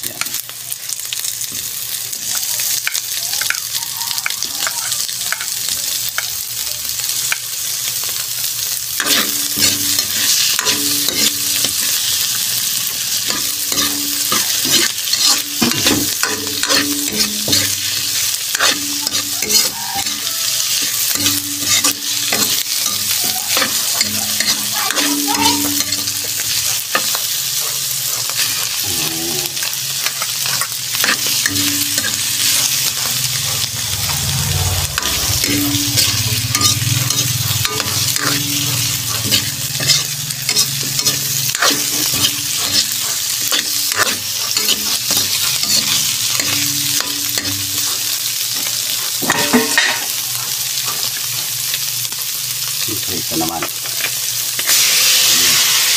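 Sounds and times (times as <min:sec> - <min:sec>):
seafood sizzling in hot oil: 0:00.0 - 0:55.9
metal spatula scraping a wok: 0:08.9 - 0:28.8, 0:29.5 - 0:50.2.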